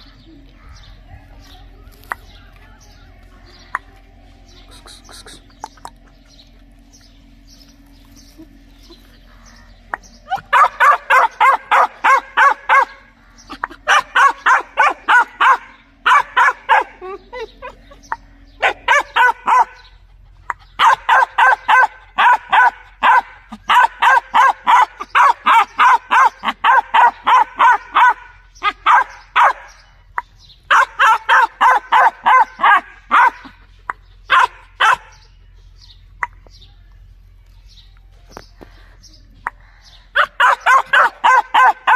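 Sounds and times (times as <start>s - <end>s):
puppy barking: 10.3s - 29.9s, 30.7s - 33.6s, 34.2s - 35.3s, 40.1s - 41.9s.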